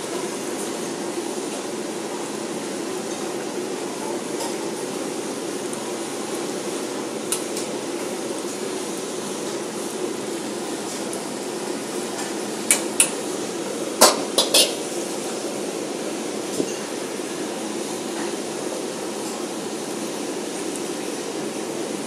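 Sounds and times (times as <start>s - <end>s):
gas burners and extraction rushing: 0.0s - 22.0s
ladle clanking on steel pots: 14.0s - 14.9s.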